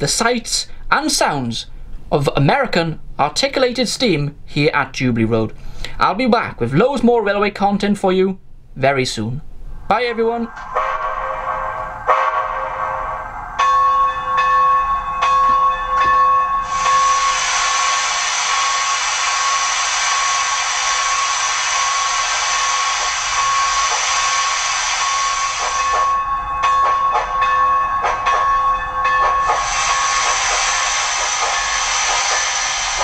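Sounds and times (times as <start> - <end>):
steady whine: 9.2 - 33.0
steam locomotive exhaust chuffs: 9.5 - 33.0
loud hiss of steam: 16.6 - 26.2, 29.3 - 33.0.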